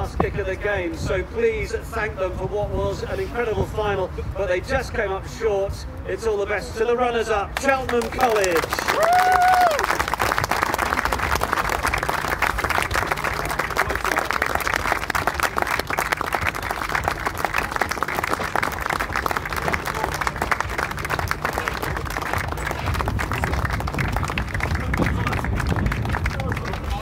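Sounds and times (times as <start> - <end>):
crowd applauding: 7.6 - 27.0.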